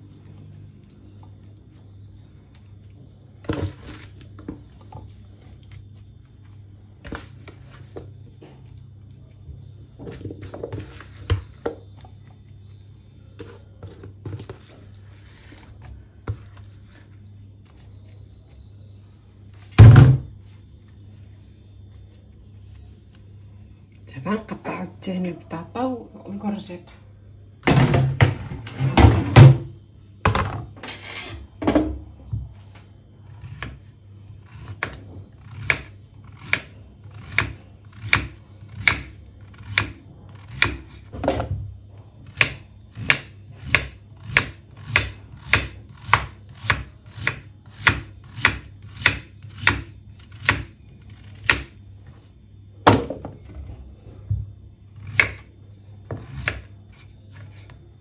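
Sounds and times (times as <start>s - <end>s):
knife slicing potato on board: 34.5s - 41.0s, 42.3s - 51.7s, 55.0s - 55.4s, 56.1s - 57.7s.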